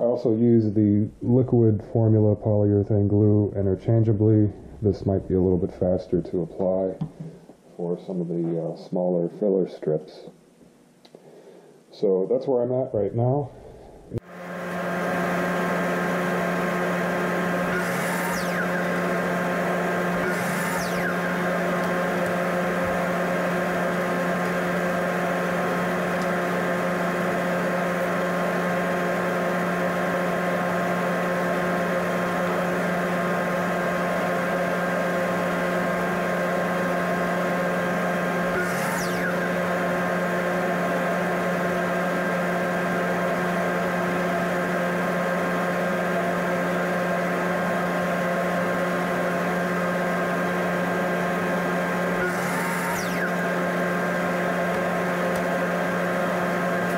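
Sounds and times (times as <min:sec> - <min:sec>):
machine drone: 0:03.1 - 0:06.4, 0:13.5 - 0:44.1, 0:51.3 - 0:56.9.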